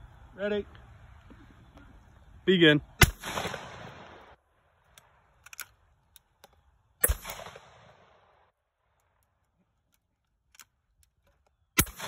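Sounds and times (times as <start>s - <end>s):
shotgun shots: 3.0s - 4.4s, 7.0s - 8.4s, 11.8s - 12.0s
shotgun action clicks: 4.9s - 7.8s, 9.0s - 12.0s.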